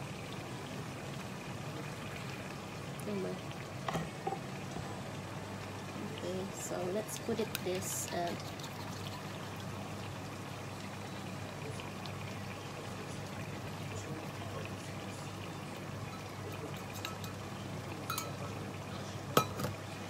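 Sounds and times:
sauce simmering in a frying pan: 0:00.0 - 0:20.0
spoon clinking on bowl: 0:18.1 - 0:18.4.

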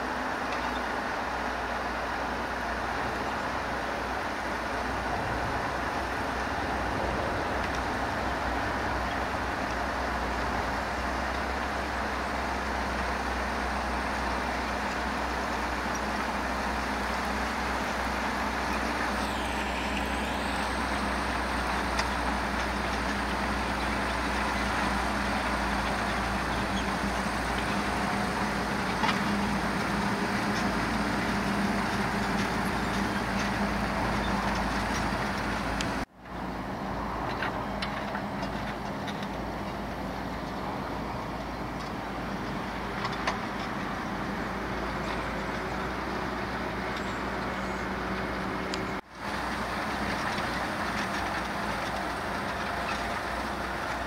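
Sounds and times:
tractor engine drone under load: 0:00.0 - 0:54.0.

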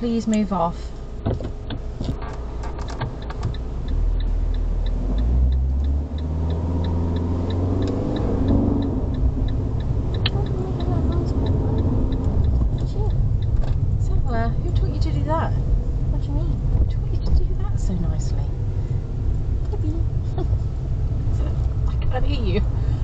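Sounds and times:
car indicator ticking: 0:00.1 - 0:23.0
car engine pulling away: 0:01.0 - 0:23.0
sharp clicks: 0:01.4 - 0:14.0.

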